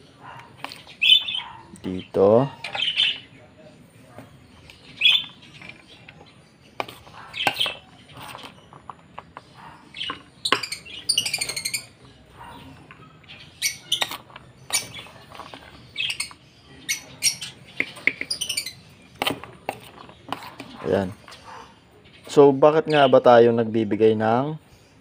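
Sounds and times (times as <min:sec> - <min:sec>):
birds chirping and squawking: 0:00.0 - 0:25.0
spoon scraping plastic dishes: 0:00.3 - 0:02.0, 0:02.6 - 0:03.3, 0:04.2 - 0:21.7.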